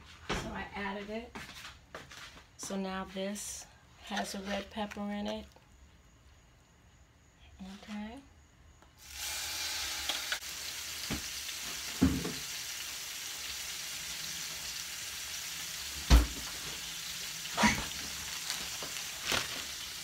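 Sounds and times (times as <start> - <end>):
vegetables sizzling in hot oil: 9.0 - 20.0.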